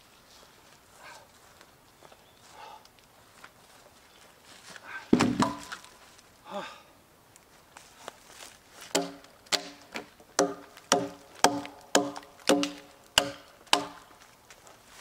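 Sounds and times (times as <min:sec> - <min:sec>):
log dropped onto logs: 0:05.1 - 0:06.0
hatchet striking logs: 0:05.2 - 0:05.8, 0:08.9 - 0:14.2.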